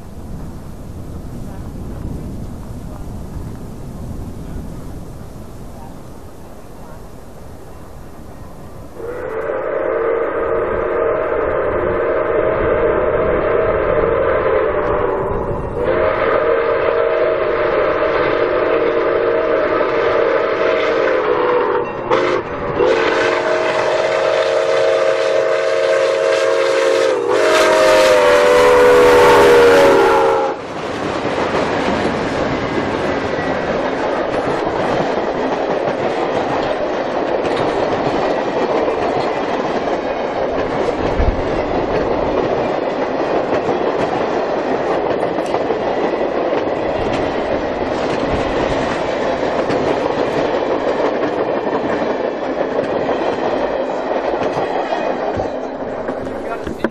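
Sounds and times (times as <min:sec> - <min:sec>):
train wheels rumbling on rail: 0:00.0 - 0:56.9
steam locomotive whistle: 0:09.0 - 0:30.7
wheels clacking over rail joints: 0:30.7 - 0:56.9.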